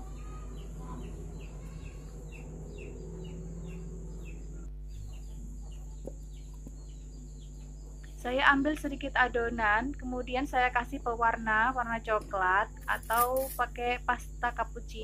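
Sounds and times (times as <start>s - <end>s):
bird chirping: 0.0s - 8.2s.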